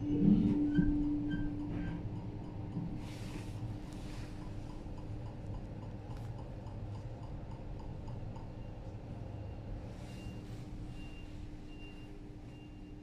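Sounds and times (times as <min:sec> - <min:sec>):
moving train rumble: 0:00.0 - 0:12.6.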